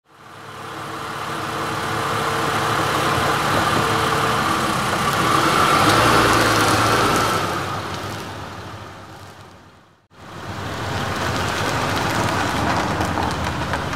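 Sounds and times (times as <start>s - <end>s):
car passing by: 2.6s - 9.4s.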